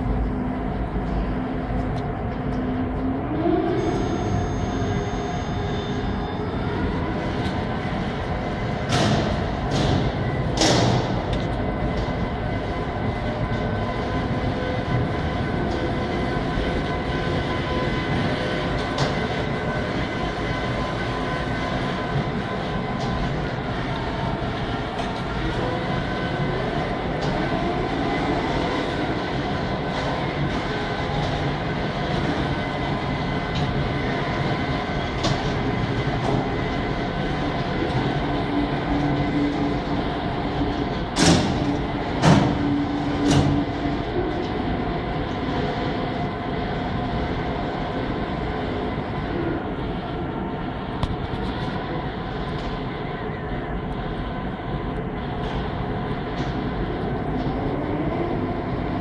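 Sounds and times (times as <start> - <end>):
faint whining tones: 0.0 - 59.0
machinery hum and whir: 0.0 - 59.0
transport cart rolling: 6.0 - 50.1.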